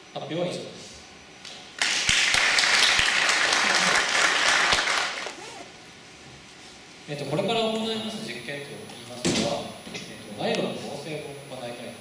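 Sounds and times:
audience applauding: 1.8s - 5.4s.

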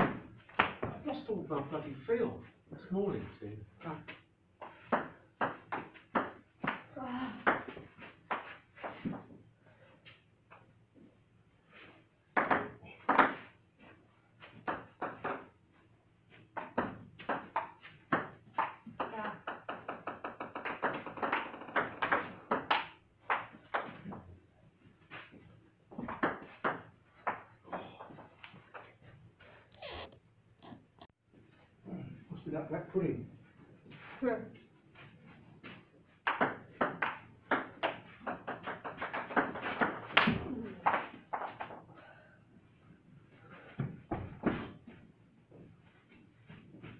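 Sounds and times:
table tennis ball hits: 4.1s - 9.2s, 12.3s - 13.5s, 14.6s - 15.5s, 16.5s - 24.3s, 25.9s - 27.8s, 36.2s - 41.8s.

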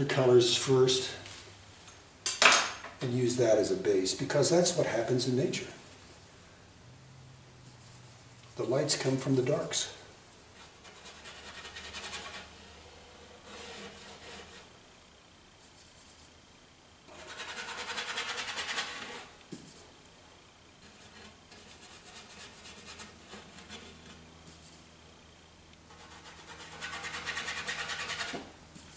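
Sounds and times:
paintbrush scrubbing on canvas: 15.6s - 16.3s.

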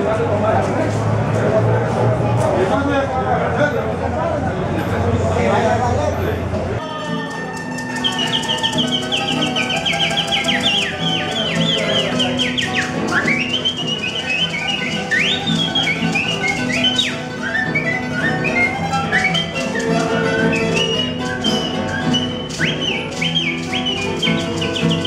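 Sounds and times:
guitars strumming chords: 6.8s - 25.0s
maracas shaking: 6.8s - 25.0s
high sliding whistle-like notes: 7.0s - 25.0s.

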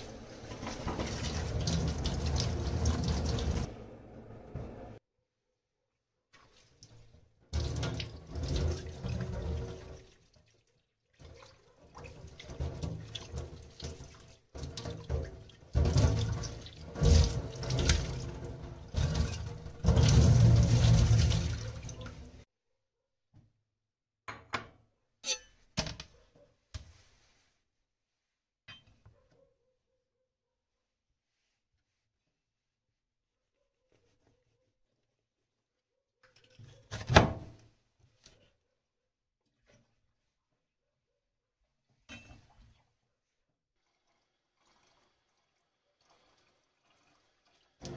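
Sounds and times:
tap water splashing into sink: 0.4s - 3.7s, 7.6s - 10.6s, 11.2s - 22.4s, 46.0s - 47.9s.

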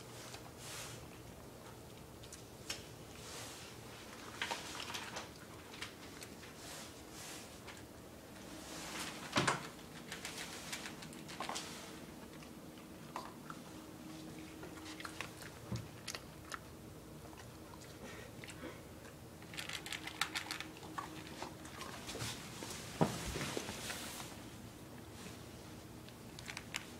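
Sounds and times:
dog crunching food: 9.9s - 22.2s.

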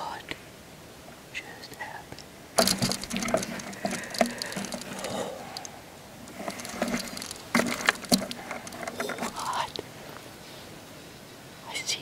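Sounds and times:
clothing and gear rustling: 2.6s - 10.8s.

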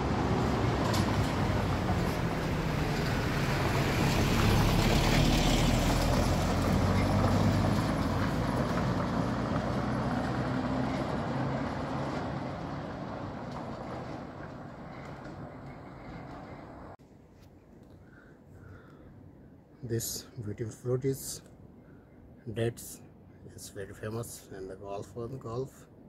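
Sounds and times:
vehicle engine humming: 0.0s - 17.0s
road noise: 0.0s - 26.0s.

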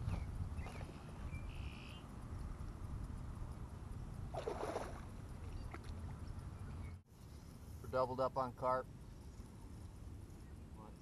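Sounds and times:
wind rumble on microphone: 0.0s - 7.0s
fish splashing in water: 4.3s - 6.0s.

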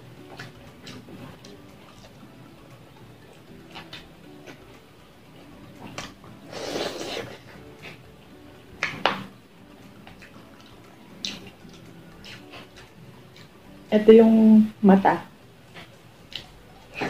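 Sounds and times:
person chewing food: 5.7s - 13.8s, 15.6s - 17.0s.

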